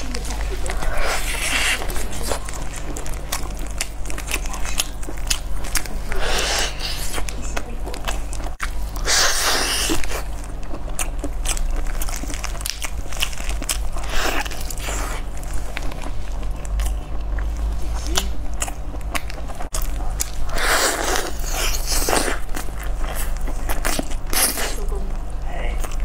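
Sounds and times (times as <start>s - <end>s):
wet chewing and biting: 0.0s - 26.0s.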